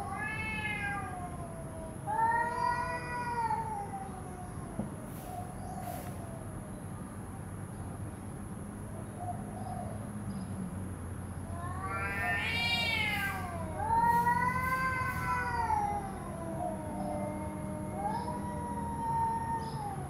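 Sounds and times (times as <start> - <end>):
cats yowling: 0.0 - 6.5, 11.4 - 20.0.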